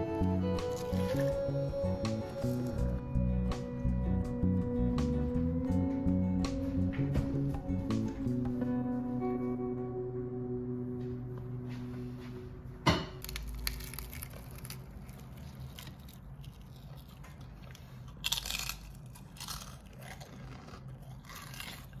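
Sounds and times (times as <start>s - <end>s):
crispy fried food crunching: 13.2s - 22.0s.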